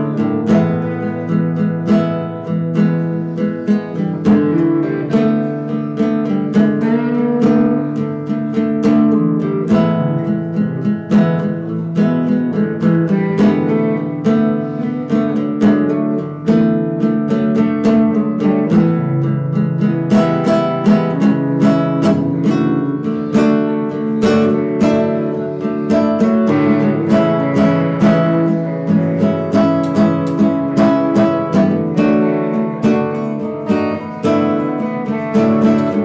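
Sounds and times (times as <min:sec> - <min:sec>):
acoustic guitar strumming: 0:00.0 - 0:36.0
instrumental band music: 0:21.1 - 0:36.0.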